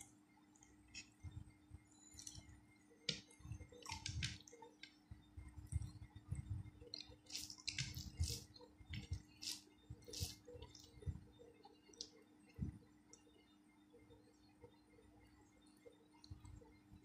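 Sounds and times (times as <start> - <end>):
fingers squishing rice: 6.9 - 11.0
wet chewing and lip-smacking: 6.9 - 11.0.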